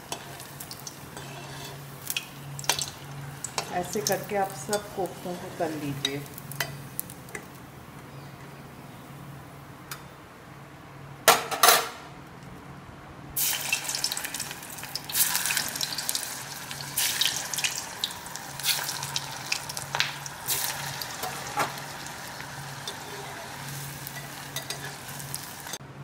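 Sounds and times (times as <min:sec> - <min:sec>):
koftas sizzling in hot oil: 0:00.0 - 0:07.6, 0:13.4 - 0:25.8.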